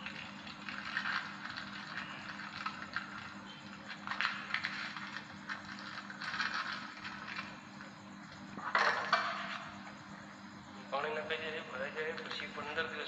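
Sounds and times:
packet crinkling: 0.0 - 7.6
faint steady hum: 0.0 - 13.0.

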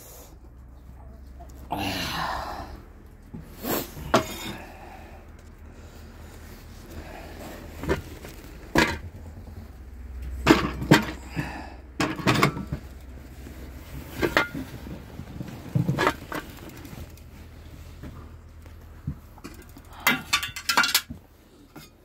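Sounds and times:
pots and containers clattering: 3.8 - 4.7, 7.7 - 13.1, 13.7 - 17.2, 19.0 - 22.0.

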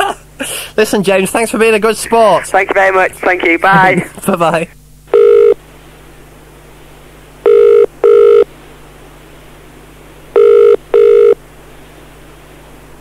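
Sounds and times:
telephone ringing tone: 5.1 - 5.6, 7.4 - 8.5, 10.4 - 11.4.

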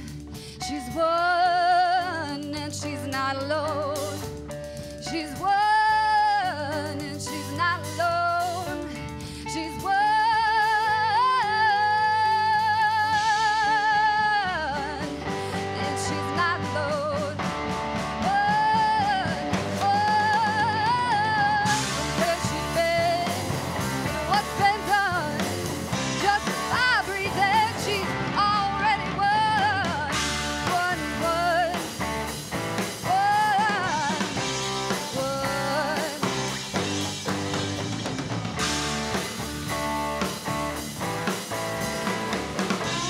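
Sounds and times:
woman singing with vibrato: 0.0 - 4.2, 5.0 - 17.4, 18.2 - 31.9, 33.0 - 36.4
bass guitar: 0.0 - 43.0
drum kit: 0.0 - 43.0
electric guitar: 0.0 - 43.0.

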